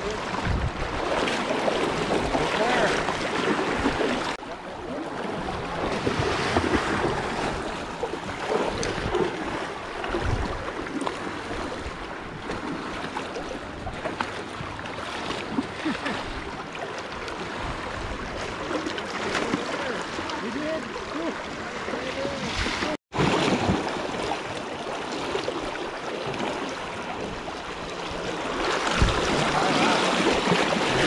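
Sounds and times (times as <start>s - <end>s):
river current rushing and gurgling: 0.0s - 31.0s
wind buffeting microphone: 0.3s - 1.2s, 5.4s - 10.9s, 28.5s - 31.0s.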